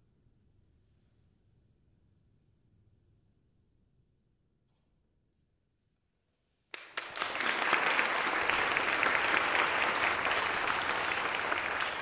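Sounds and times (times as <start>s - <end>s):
audience applauding: 6.8s - 12.0s.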